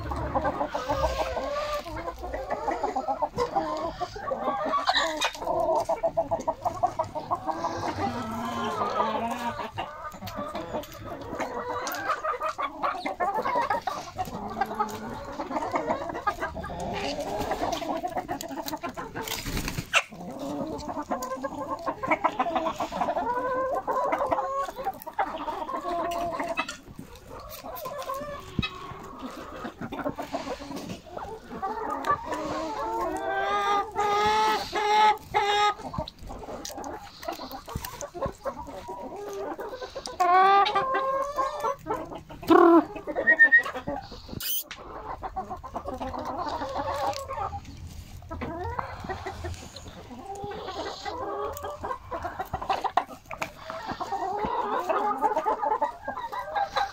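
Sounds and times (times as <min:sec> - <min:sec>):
hens and roosters clucking: 0:00.0 - 0:56.9.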